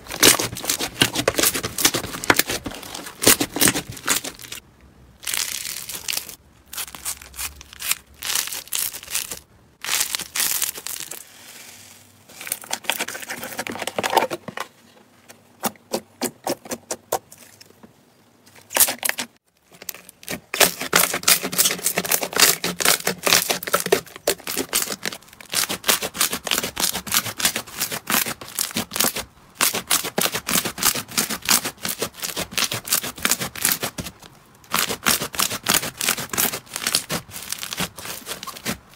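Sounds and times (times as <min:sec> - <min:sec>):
slime crackling and popping: 0:05.2 - 0:11.2.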